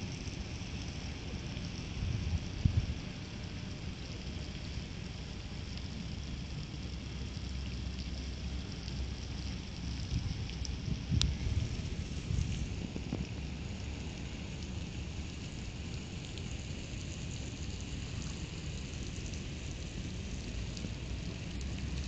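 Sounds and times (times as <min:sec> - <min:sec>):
faint scattered ticks: 0:00.0 - 0:22.0
steady outdoor hiss: 0:00.0 - 0:22.0
wind buffeting microphone: 0:02.0 - 0:03.0, 0:10.0 - 0:15.4.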